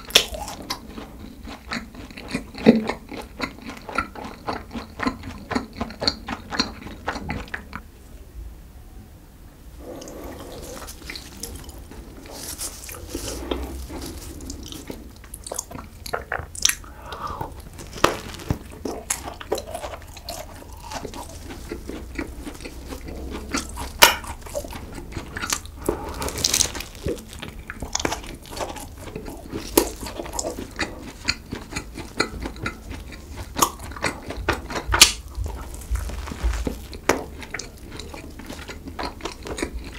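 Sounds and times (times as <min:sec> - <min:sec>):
chewing: 0:00.0 - 0:07.9, 0:09.8 - 0:39.9
crunchy bites into pastry: 0:16.6 - 0:39.9.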